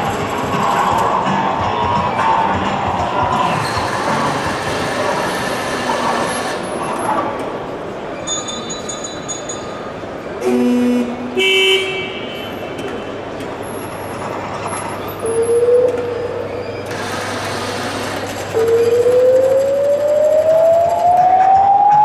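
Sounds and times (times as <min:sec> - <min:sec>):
vehicle horn toots: 0:10.4 - 0:12.6
siren winding up: 0:18.6 - 0:22.0.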